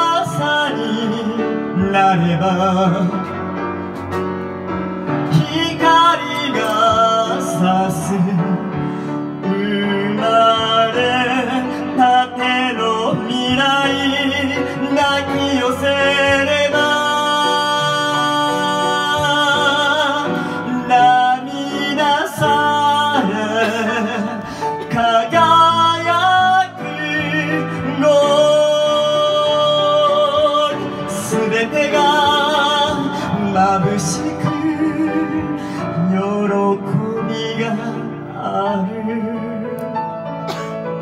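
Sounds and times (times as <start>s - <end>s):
person singing a ballad: 0.0s - 41.0s
piano accompaniment: 0.0s - 41.0s.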